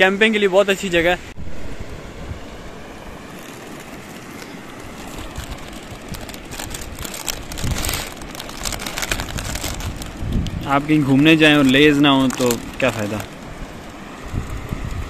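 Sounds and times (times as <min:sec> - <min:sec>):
steady rushing background noise: 0:00.0 - 0:15.0
foil chip packet crinkling: 0:04.9 - 0:13.5.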